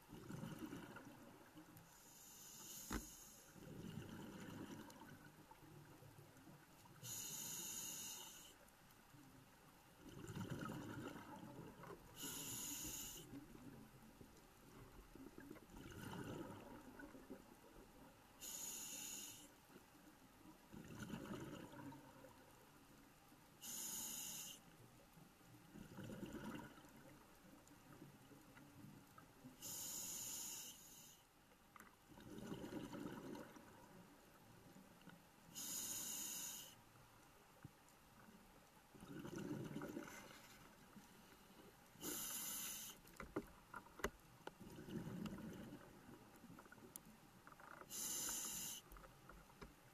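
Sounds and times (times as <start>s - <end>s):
hissing regulator inhalations: 1.9s - 3.6s, 7.0s - 8.6s, 12.2s - 13.3s, 18.4s - 19.5s, 23.6s - 24.6s, 29.6s - 31.2s, 35.6s - 36.8s, 42.0s - 43.1s, 47.9s - 48.9s.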